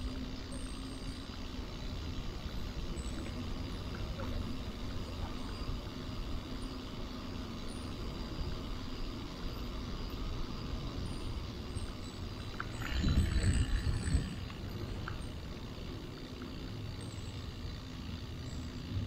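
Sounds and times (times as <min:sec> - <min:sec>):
bicycle tyres on pavement: 0:00.0 - 0:19.0
wind buffeting camera: 0:12.5 - 0:15.4.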